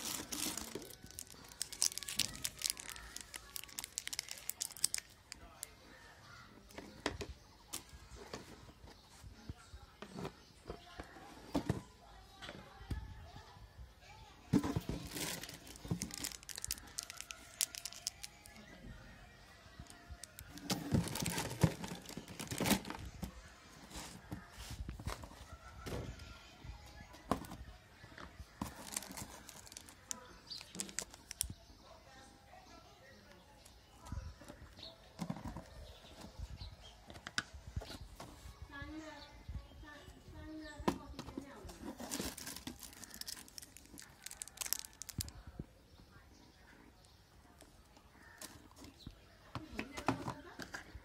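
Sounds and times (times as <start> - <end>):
plastic candy wrappers crinkling: 0.0 - 5.8, 14.8 - 18.8, 19.7 - 23.2, 28.6 - 31.5, 41.8 - 45.6.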